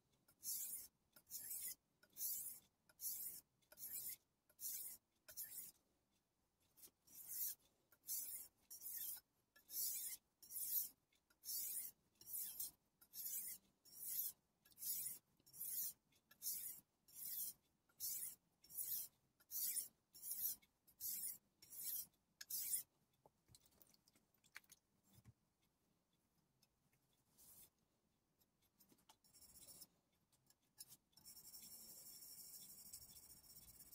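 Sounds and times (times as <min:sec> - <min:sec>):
knife blade scraping on whetstone: 0:00.4 - 0:05.7, 0:07.1 - 0:10.9, 0:11.5 - 0:22.9.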